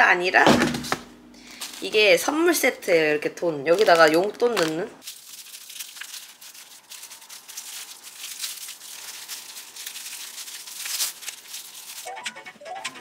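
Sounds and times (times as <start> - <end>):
plastic strips crinkling and rustling: 1.5 - 2.3, 3.6 - 12.2.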